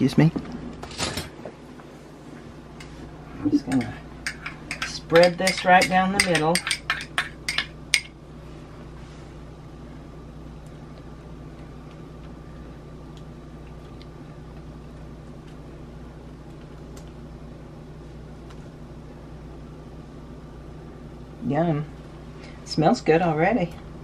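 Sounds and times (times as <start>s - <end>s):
low machine hum with whine: 0.0s - 24.0s
spoon clicking against ceramic bowl: 3.7s - 8.1s.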